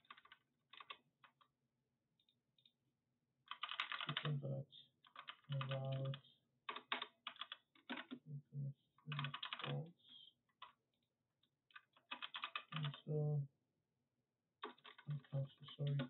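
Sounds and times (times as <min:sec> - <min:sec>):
typing on computer keyboard: 0:00.0 - 0:01.4, 0:03.5 - 0:04.3, 0:05.1 - 0:08.2, 0:09.1 - 0:09.8, 0:11.8 - 0:13.0, 0:14.6 - 0:16.0.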